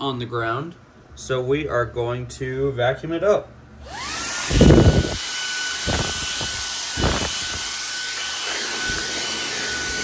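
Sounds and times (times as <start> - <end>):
handheld vacuum running: 3.8 - 10.0.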